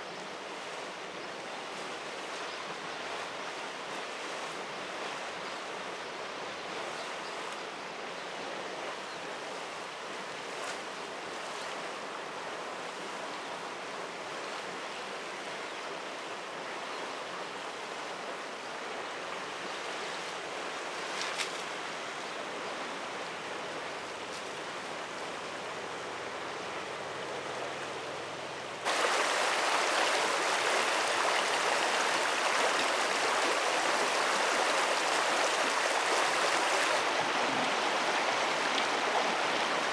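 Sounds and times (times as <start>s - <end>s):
stream running water: 0.0s - 39.9s
shallow water flowing over weed: 28.8s - 37.1s.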